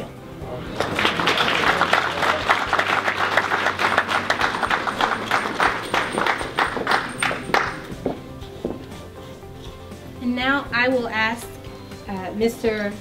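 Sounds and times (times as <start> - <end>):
audience applauding: 0.6 - 8.1.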